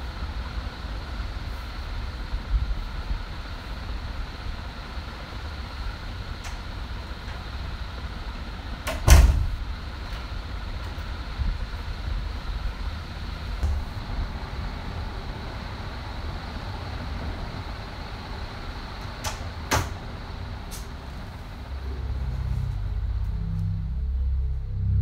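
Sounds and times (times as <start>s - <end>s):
low room rumble: 0.0s - 25.0s
low droning music tone: 21.7s - 25.0s.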